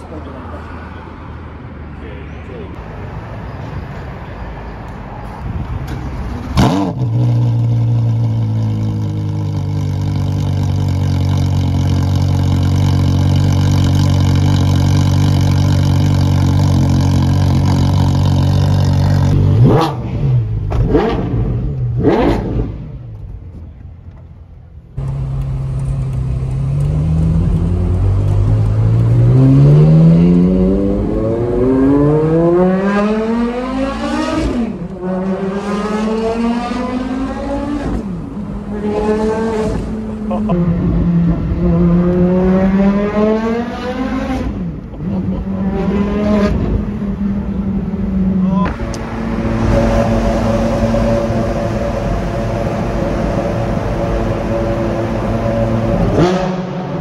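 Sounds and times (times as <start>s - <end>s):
car engine revving and idling: 6.2s - 23.4s, 24.8s - 57.0s
car accelerating through gears: 26.6s - 47.1s, 48.1s - 57.0s.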